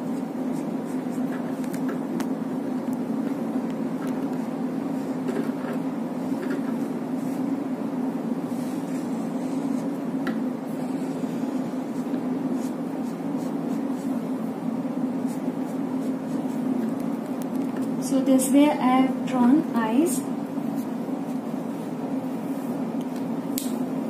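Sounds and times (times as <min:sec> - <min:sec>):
steady low hum: 0:00.0 - 0:24.0
pen scratching on paper: 0:00.1 - 0:02.0, 0:08.5 - 0:10.1, 0:10.7 - 0:14.3, 0:15.2 - 0:17.0.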